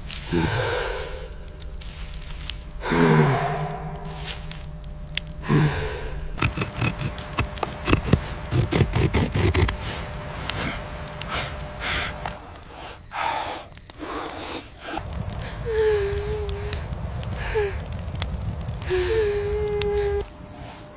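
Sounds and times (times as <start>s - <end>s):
breathy gasps: 0.3s - 1.4s, 5.4s - 7.0s
person grunting: 5.4s - 7.1s.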